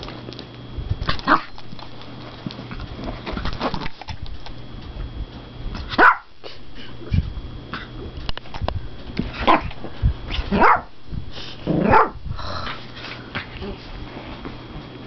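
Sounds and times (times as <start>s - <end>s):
small dog barking: 6.0s - 6.3s, 10.5s - 10.9s, 11.8s - 12.2s.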